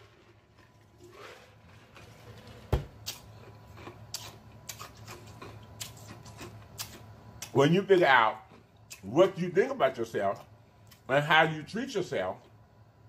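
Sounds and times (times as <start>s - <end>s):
mouth clicks and lip smacks: 3.0s - 7.6s.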